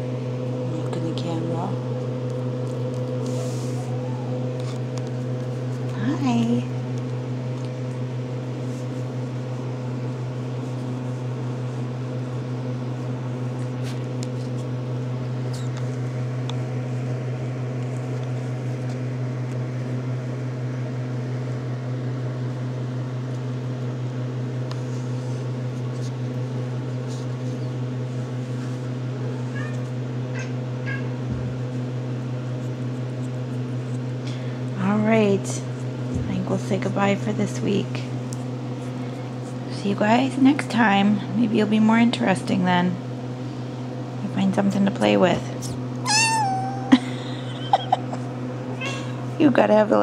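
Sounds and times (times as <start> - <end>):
steady low hum: 0.0 - 50.0
kitten mewing: 29.5 - 31.2, 46.0 - 47.1, 48.7 - 49.2.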